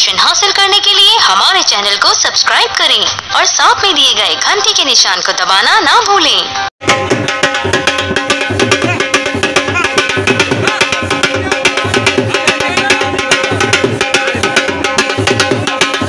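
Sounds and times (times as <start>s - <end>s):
barrel drum fast rhythm: 6.8s - 16.0s.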